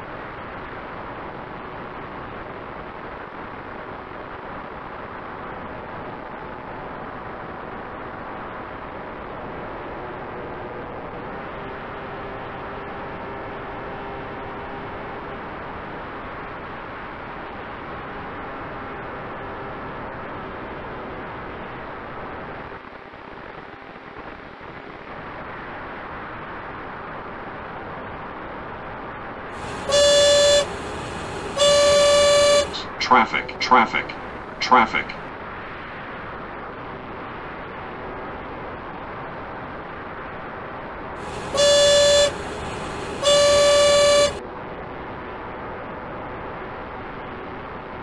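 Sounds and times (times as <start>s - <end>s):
electric motor and propeller tone: 29.6s - 32.7s, 41.2s - 44.4s
loud horn honks: 29.6s - 35.2s, 41.2s - 44.4s
model airplane motor whirring: 41.3s - 44.4s.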